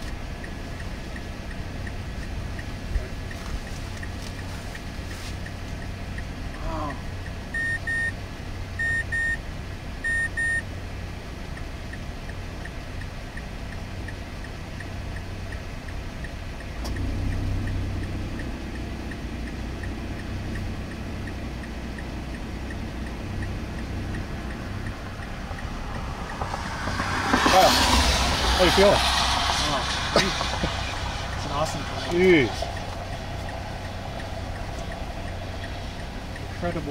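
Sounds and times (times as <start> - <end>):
high electronic beeps: 7.5 - 8.2, 8.8 - 9.4, 10.0 - 10.6
low rumble: 16.9 - 36.9.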